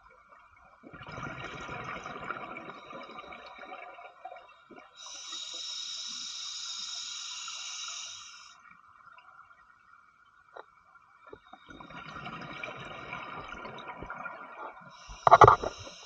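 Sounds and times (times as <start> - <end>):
exhaled bubbles gurgling underwater: 0.0 - 5.1, 11.2 - 16.0
regulator inhalation hiss: 5.0 - 8.6, 15.0 - 16.0.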